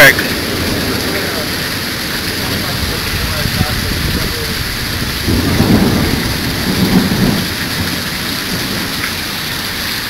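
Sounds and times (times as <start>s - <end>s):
heavy rain pouring: 0.0s - 10.0s
thunder rumble: 0.0s - 10.0s.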